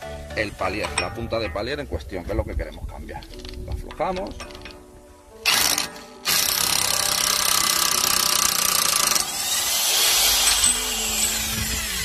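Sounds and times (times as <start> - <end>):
impact wrench hammering: 5.5 - 11.7.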